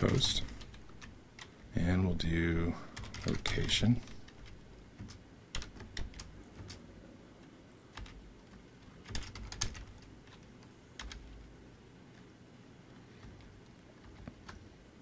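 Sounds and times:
computer keyboard typing: 0:00.0 - 0:01.6, 0:02.9 - 0:06.9, 0:07.9 - 0:11.4, 0:13.2 - 0:14.7.

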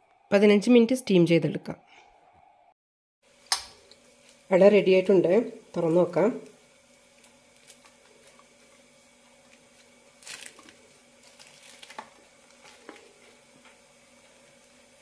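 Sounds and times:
leaf wrapper rustling: 0:06.9 - 0:08.6, 0:09.3 - 0:13.4.

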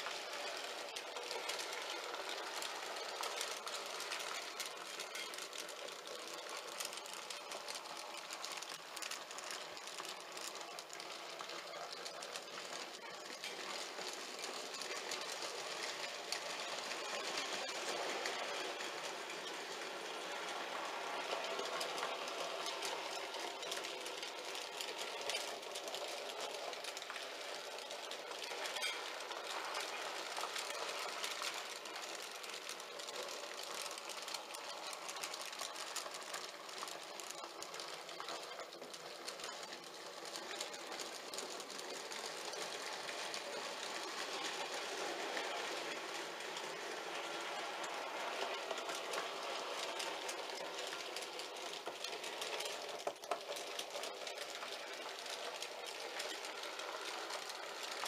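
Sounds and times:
fine rapid clicking: 0:00.0 - 0:58.0
model train whirring rattle: 0:00.0 - 0:58.0.

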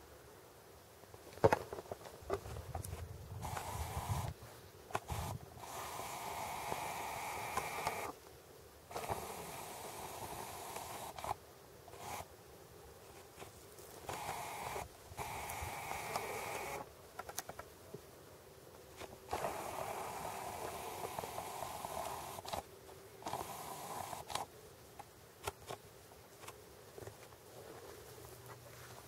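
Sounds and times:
camera zoom motor whirring: 0:03.4 - 0:08.2, 0:08.9 - 0:12.3, 0:14.0 - 0:16.9, 0:19.3 - 0:22.6, 0:23.2 - 0:24.5.

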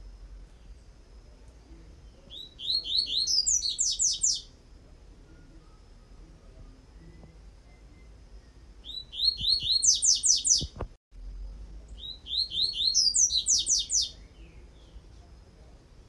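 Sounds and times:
bird singing: 0:01.6 - 0:04.6, 0:05.2 - 0:10.8, 0:11.7 - 0:15.6.

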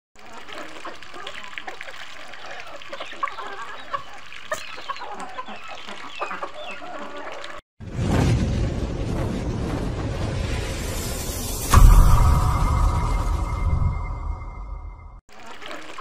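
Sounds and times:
hens clucking: 0:00.2 - 0:07.6
low rumbling sound effect: 0:07.8 - 0:15.2.

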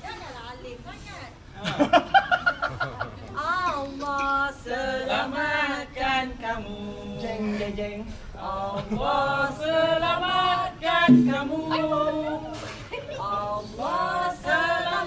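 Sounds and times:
group singing a cappella: 0:04.0 - 0:15.0.

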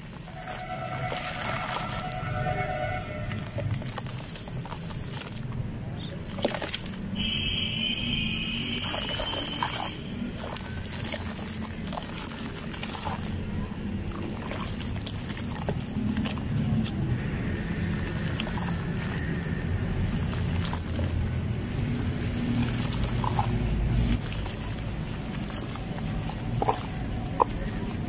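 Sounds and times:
hands squelching wet sand: 0:00.0 - 0:28.0
water sloshing and splashing: 0:00.0 - 0:28.0
steady high tone: 0:00.3 - 0:03.6.

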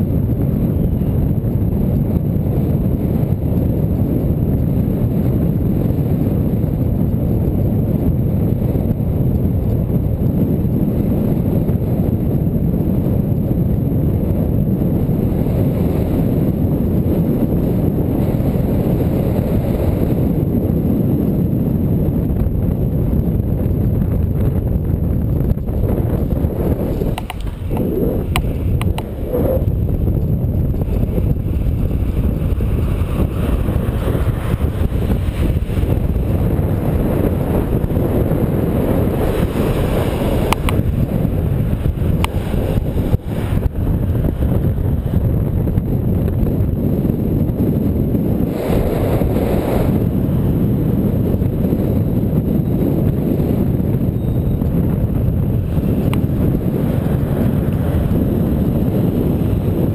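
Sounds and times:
wind buffeting microphone: 0:00.0 - 0:59.9
road traffic passing: 0:25.6 - 0:45.0
sharp clicks: 0:27.0 - 0:29.2.

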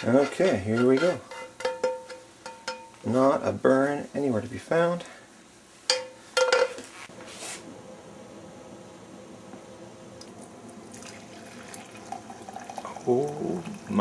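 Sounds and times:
metal kitchenware clanking: 0:00.0 - 0:03.0, 0:05.9 - 0:06.8.

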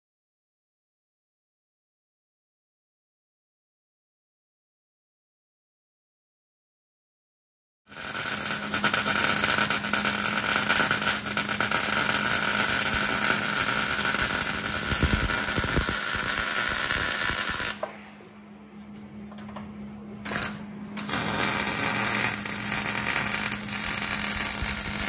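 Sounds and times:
welding arc crackling: 0:07.9 - 0:17.8, 0:20.2 - 0:25.0.

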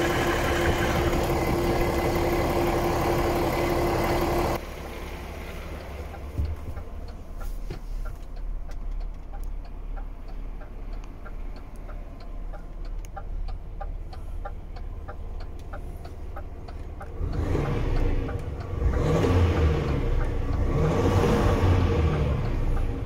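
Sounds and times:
diesel engine idling and revving: 0:00.0 - 0:23.0
light ticking: 0:05.6 - 0:23.0.

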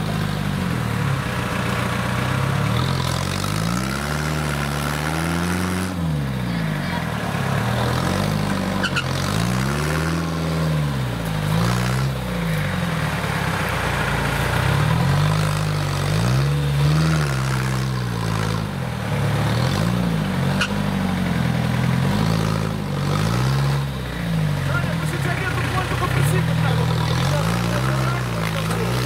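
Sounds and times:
tractor engine revving: 0:00.0 - 0:29.0.

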